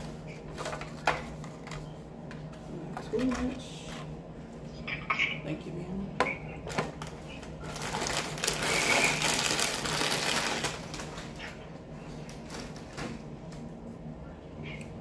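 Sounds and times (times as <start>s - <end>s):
plastic chip bag crinkling: 7.0s - 11.6s.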